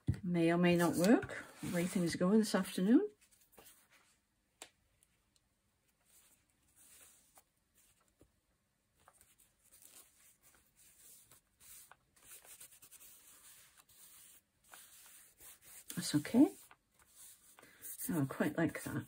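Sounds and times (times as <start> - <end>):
paper rustling: 3.2 - 4.2, 5.8 - 19.0.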